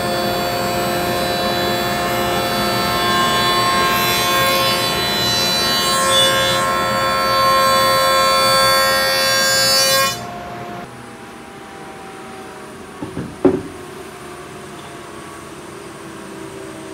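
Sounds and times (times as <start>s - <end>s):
jointer cutting wood whine: 0.0s - 10.8s
sharp knocks: 13.0s - 13.8s.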